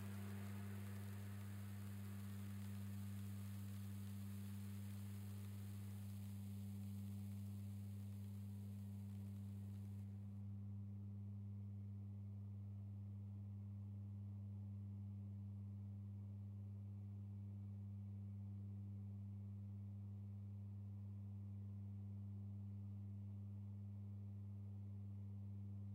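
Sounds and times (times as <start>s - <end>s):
low drone of pure tones: 0.0s - 10.2s.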